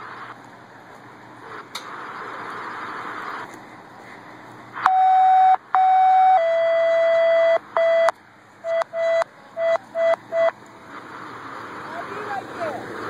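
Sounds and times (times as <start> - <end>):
short beeps: 4.8 - 10.6
electronic alert tone: 4.9 - 10.5.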